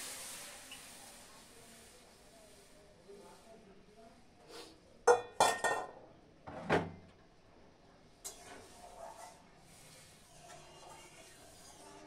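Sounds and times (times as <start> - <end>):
ladle scraping steel pan: 8.2 - 12.0.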